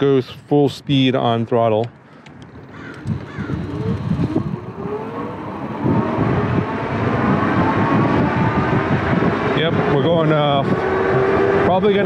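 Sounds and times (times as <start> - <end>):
wind rumble on microphone: 2.3 - 12.0
electric motor whining: 2.7 - 12.0.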